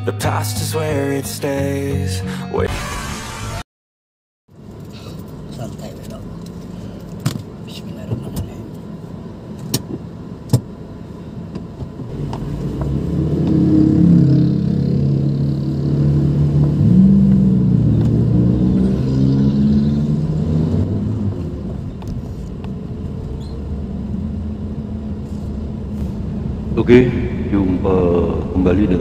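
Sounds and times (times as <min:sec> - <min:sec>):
car engine accelerating: 0:11.3 - 0:29.0.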